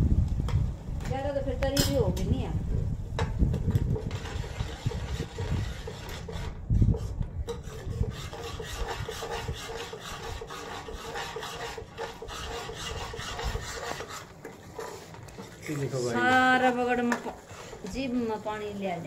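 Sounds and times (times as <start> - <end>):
metal ladle scraping a pan: 3.6 - 16.2, 17.3 - 18.0.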